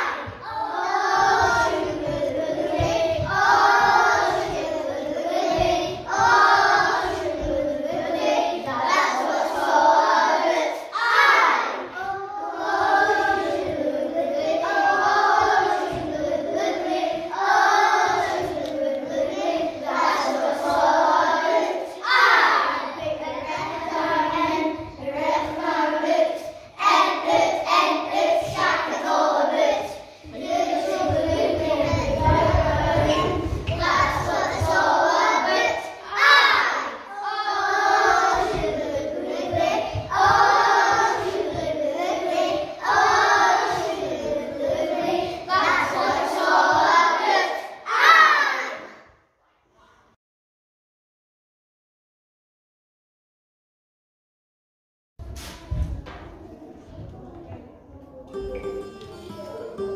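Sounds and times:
young children singing: 0.0 - 49.2, 58.2 - 59.9.

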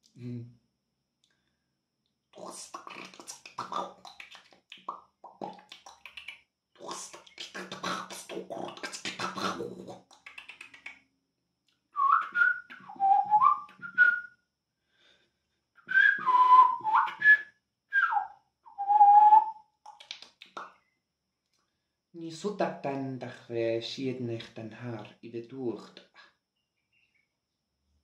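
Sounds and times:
man whistling sliding notes: 12.0 - 14.3, 15.8 - 19.5.

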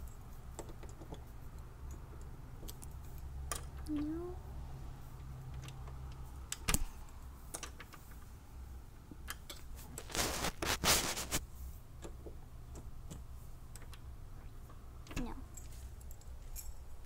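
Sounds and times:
keys clicking and jangling: 15.5 - 17.0.

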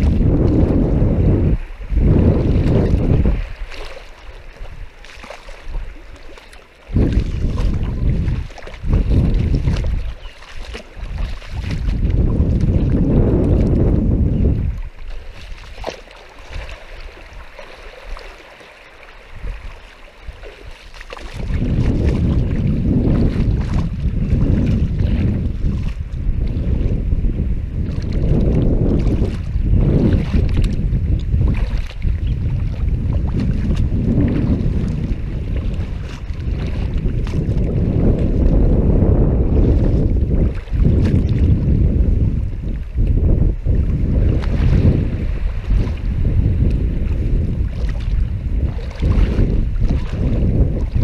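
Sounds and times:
shallow water sloshing: 0.0 - 51.0
wind buffeting microphone: 0.0 - 51.0.

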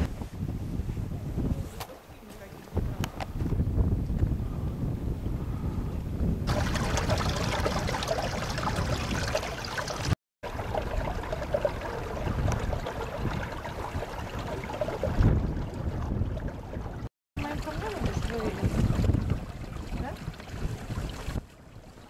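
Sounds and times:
stream water over rocks: 6.5 - 22.0.

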